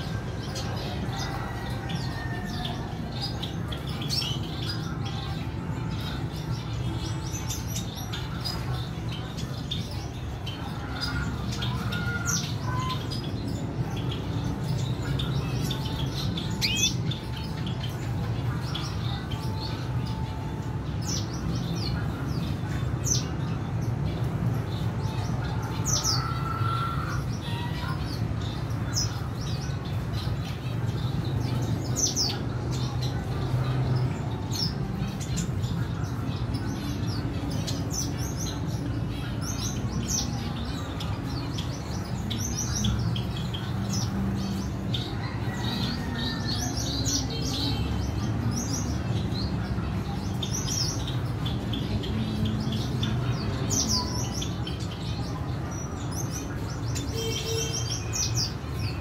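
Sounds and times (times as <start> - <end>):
birds chirping: 0.0 - 59.0.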